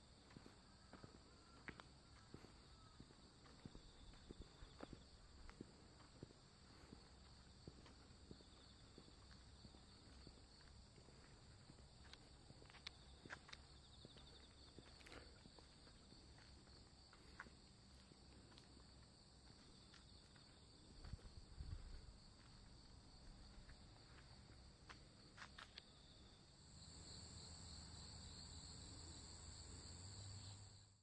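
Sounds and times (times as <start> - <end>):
crickets trilling: 6.2 - 30.8.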